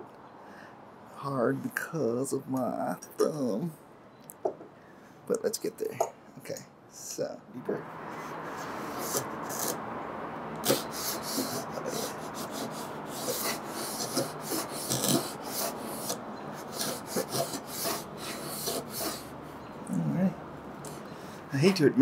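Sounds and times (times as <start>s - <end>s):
router plane scraping wood: 8.3s - 9.8s, 10.6s - 19.4s.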